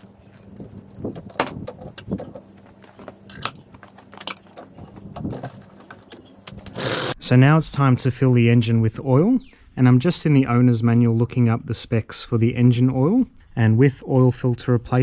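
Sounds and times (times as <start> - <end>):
metallic clinks and rattles of jacks: 0.2 - 7.2.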